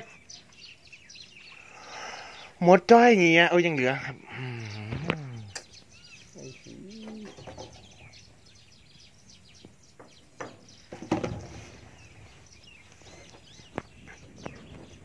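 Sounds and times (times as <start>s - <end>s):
faint bird calls: 0.0s - 2.7s, 3.9s - 15.0s
sharp knocks and ticks: 10.0s - 11.3s.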